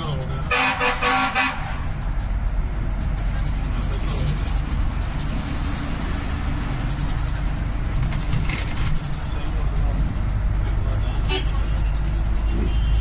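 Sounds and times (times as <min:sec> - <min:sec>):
vehicle engine and road rumble: 0:00.0 - 0:13.0.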